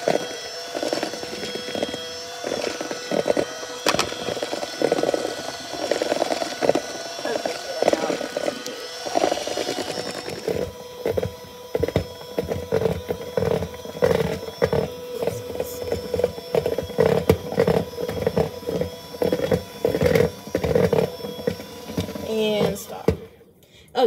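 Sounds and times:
electric hand mixer motor hum: 0:00.0 - 0:23.4.

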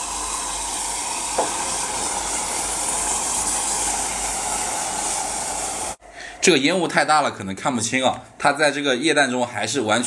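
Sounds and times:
loud hiss of burning match: 0:00.0 - 0:06.0.

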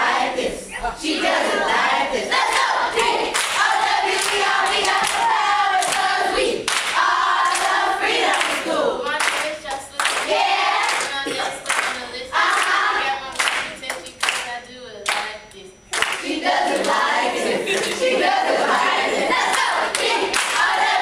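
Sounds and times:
group singing and chanting: 0:00.0 - 0:21.0
hand clapping: 0:02.5 - 0:06.1, 0:06.7 - 0:12.8, 0:13.4 - 0:15.3, 0:15.9 - 0:17.0, 0:17.7 - 0:18.1, 0:19.4 - 0:20.9.

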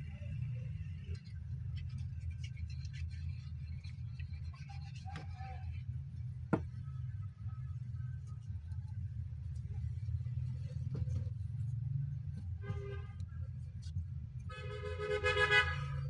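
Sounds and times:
faint ticks and scratches: 0:00.2 - 0:14.6.

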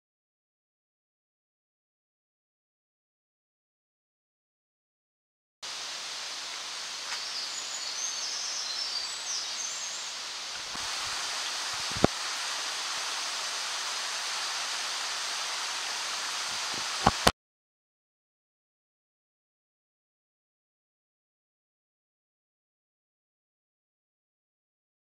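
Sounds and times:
wind through leaves: 0:05.6 - 0:17.3
high bird chirps: 0:06.5 - 0:10.2.

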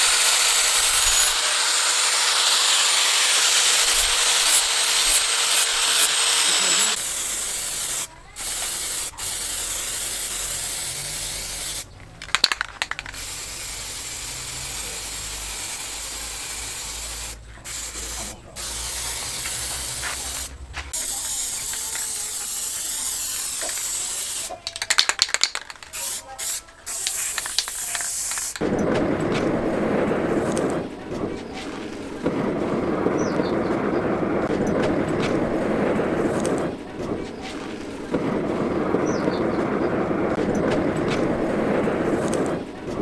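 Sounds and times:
aerosol spray can hissing: 0:00.0 - 0:28.6.

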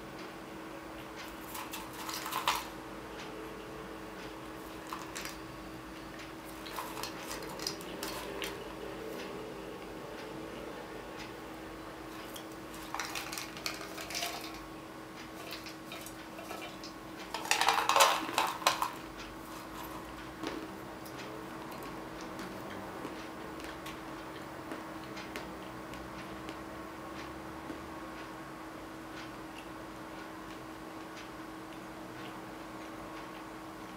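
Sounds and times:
peanuts rattling in metal tin: 0:01.4 - 0:02.7, 0:04.8 - 0:05.4, 0:06.6 - 0:08.6, 0:12.7 - 0:14.6, 0:15.4 - 0:20.0.

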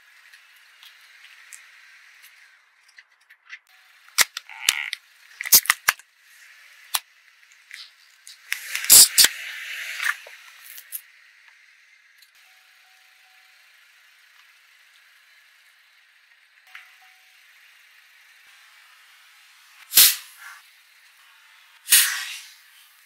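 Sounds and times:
faint hiss: 0:17.6 - 0:23.0.

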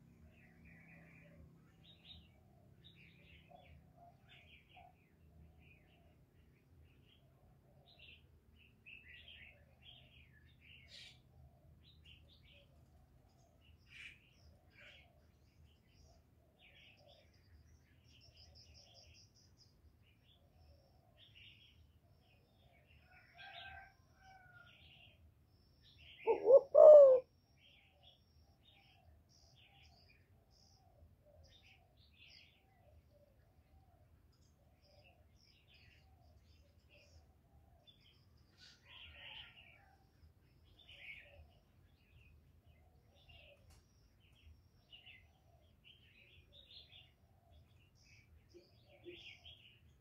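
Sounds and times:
small birds chirping: 0:07.9 - 0:50.0
dove cooing: 0:26.2 - 0:27.3.

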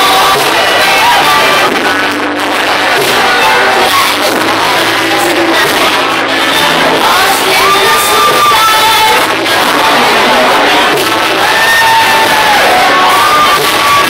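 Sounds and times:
waltz music playing loudly: 0:08.4 - 0:11.4
crowd cheering and whooping: 0:09.1 - 0:14.0.

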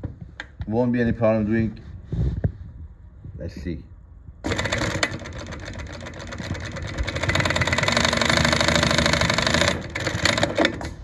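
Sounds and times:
industrial sewing machine stitching: 0:04.4 - 0:11.0.

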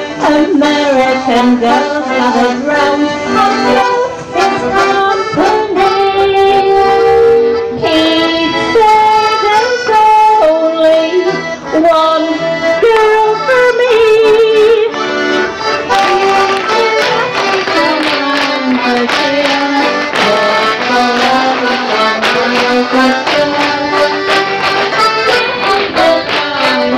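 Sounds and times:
accordion playing waltz: 0:00.0 - 0:26.9.

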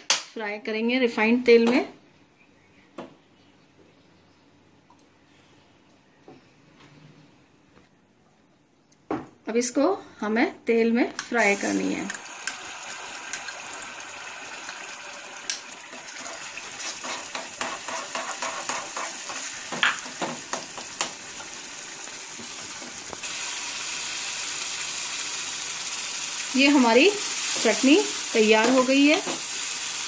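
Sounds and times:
paste sizzling in hot oil: 0:11.4 - 0:30.0.

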